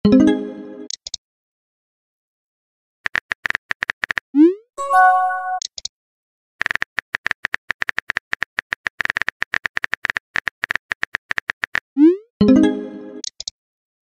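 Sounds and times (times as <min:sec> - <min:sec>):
electronic message chime: 0:04.8 - 0:05.6.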